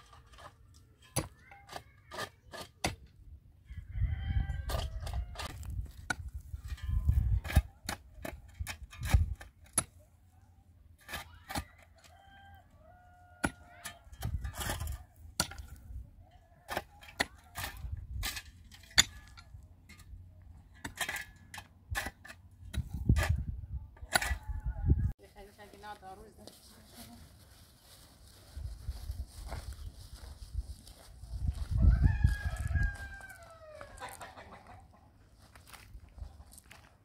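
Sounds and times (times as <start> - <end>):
chickens clucking: 33.8 - 35.4.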